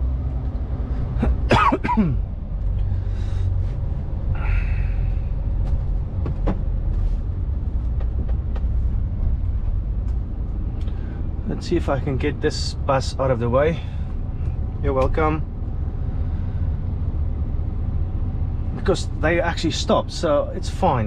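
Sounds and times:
diesel engine rumbling: 0:00.0 - 0:21.0
person coughing: 0:01.2 - 0:02.2.

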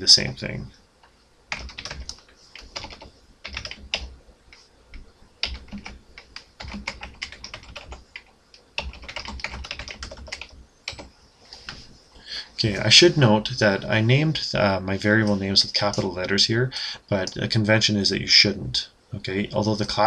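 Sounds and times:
typing on a keyboard: 0:01.5 - 0:04.1, 0:05.4 - 0:11.1.

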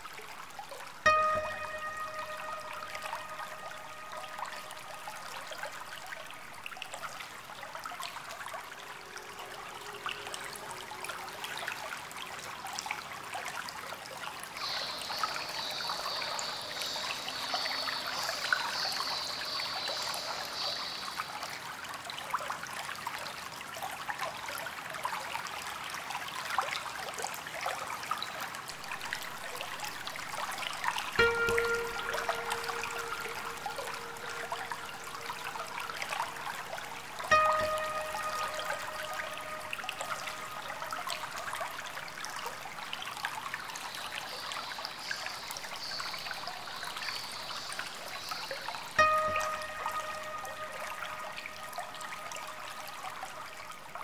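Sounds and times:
water trickling: 0:00.0 - 0:54.0
pitched tone: 0:01.1 - 0:05.1, 0:31.2 - 0:36.3, 0:37.3 - 0:41.0.

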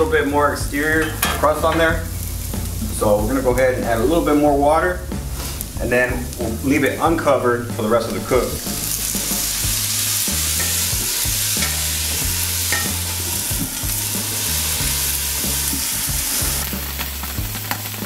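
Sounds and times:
potatoes sizzling on a griddle: 0:00.7 - 0:04.3, 0:05.0 - 0:07.4, 0:08.0 - 0:18.0
water hissing into steam: 0:05.1 - 0:18.0.

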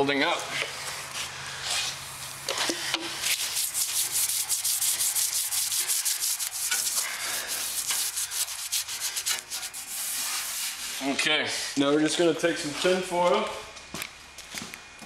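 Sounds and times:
abrasive pad scrubbing metal: 0:02.7 - 0:11.3.

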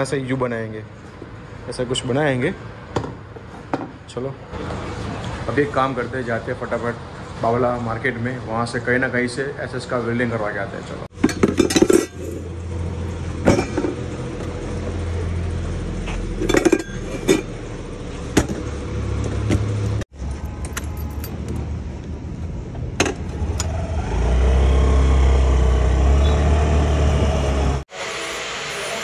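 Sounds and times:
metal pipes clinking: 0:11.1 - 0:12.5, 0:16.1 - 0:17.8
scooter engine rumble: 0:11.1 - 0:27.9.

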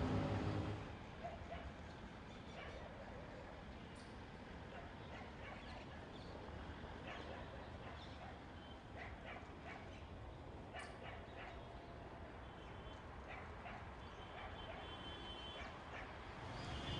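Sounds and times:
faint outdoor ambience: 0:00.0 - 0:16.9.

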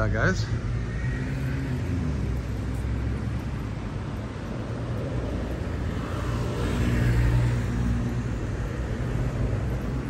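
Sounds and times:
low traffic rumble: 0:00.0 - 0:10.0
vehicle driving past: 0:00.4 - 0:04.0.

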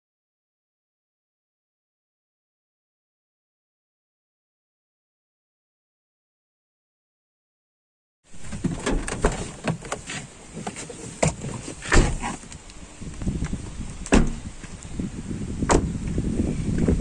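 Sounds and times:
car door clicks and knocks: 0:08.4 - 0:12.4, 0:14.1 - 0:14.4, 0:15.7 - 0:15.9
car door thumps: 0:08.4 - 0:12.4, 0:14.1 - 0:14.4, 0:15.6 - 0:16.0.

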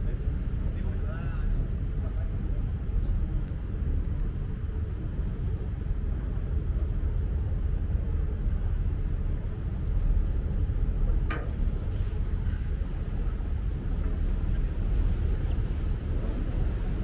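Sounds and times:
boat engine rumble: 0:00.0 - 0:17.0.

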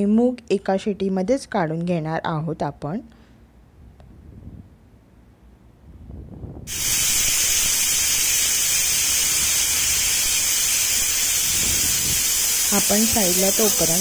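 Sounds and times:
pressure cooker steam hissing: 0:06.7 - 0:14.0.

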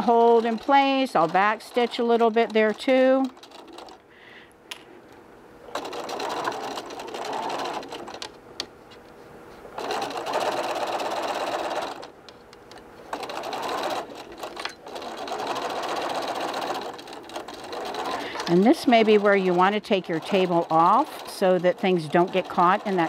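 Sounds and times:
sewing machine stitching: 0:00.0 - 0:04.0, 0:05.7 - 0:08.3, 0:09.8 - 0:12.1, 0:13.1 - 0:23.0.

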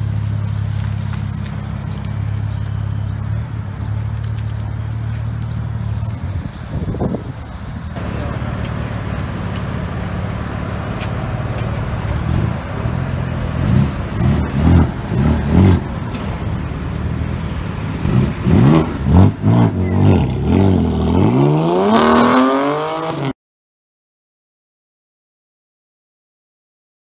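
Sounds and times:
loud car exhaust revving: 0:00.0 - 0:23.3.

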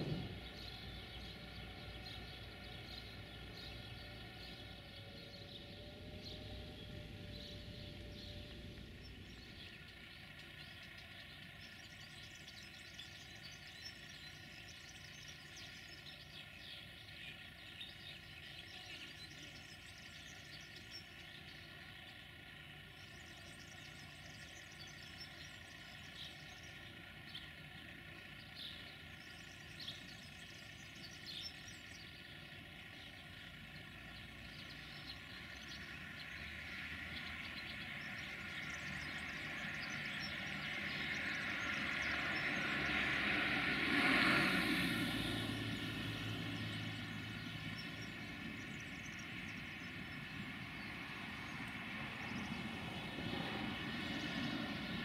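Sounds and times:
train rumble: 0:00.0 - 0:03.8
electric locomotive hum: 0:00.0 - 0:13.6
faint bird chirps: 0:00.0 - 0:43.0.

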